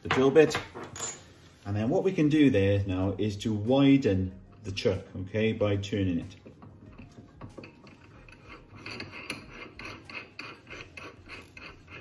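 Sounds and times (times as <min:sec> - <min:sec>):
drill chuck rasping scrape: 0:07.7 - 0:12.0.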